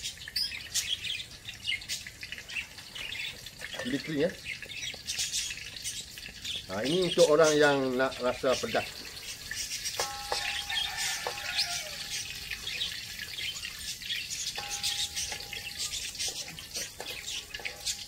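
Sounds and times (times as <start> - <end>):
chillies crackling in hot oil: 0.0 - 18.0
metal spatula clinking on wok: 9.9 - 13.5, 14.4 - 18.0.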